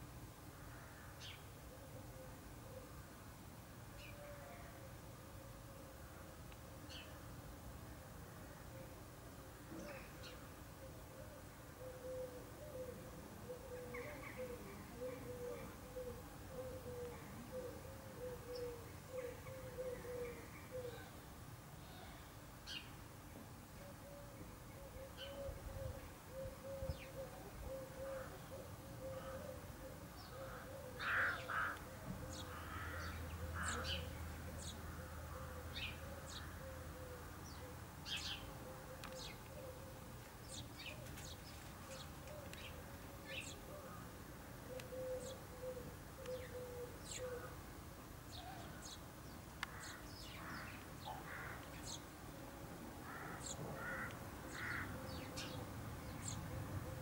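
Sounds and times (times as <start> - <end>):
sparrows chirping: 30.2 - 34.9, 37.4 - 39.5, 40.4 - 43.7, 53.2 - 57.0.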